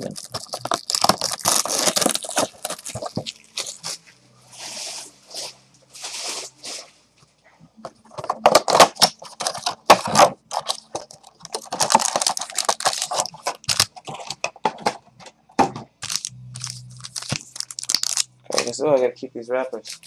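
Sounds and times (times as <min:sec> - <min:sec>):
card pack wrappers tearing: 0:00.0 - 0:04.0, 0:08.5 - 0:14.4, 0:16.0 - 0:18.8, 0:19.8 - 0:20.0.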